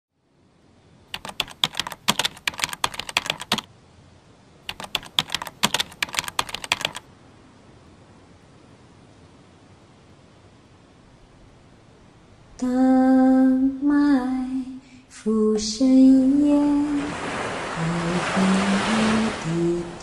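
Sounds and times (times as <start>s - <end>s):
faint steady hiss: 0.2s - 20.0s
rapid typing key clicks: 1.1s - 3.7s, 4.7s - 7.0s.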